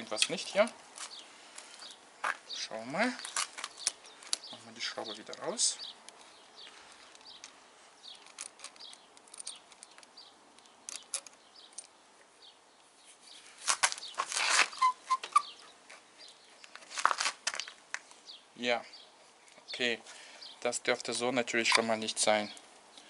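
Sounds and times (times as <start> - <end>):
rubber grip rubbing and rustling: 3.1 - 4.5, 13.0 - 18.1
screwdriver clicking and scraping: 8.1 - 10.1
short squeaks: 14.1 - 15.7.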